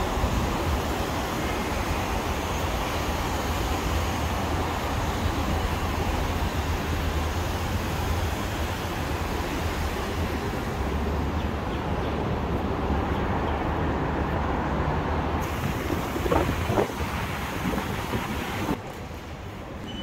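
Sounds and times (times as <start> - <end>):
heavy highway traffic rushing: 0.0 - 19.9
wind on microphone: 15.4 - 18.8.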